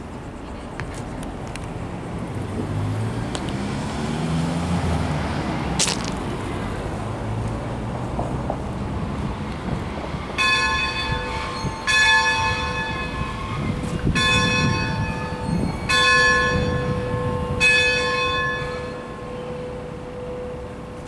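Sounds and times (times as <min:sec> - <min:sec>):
locomotive bell clanging: 0:10.4 - 0:21.0.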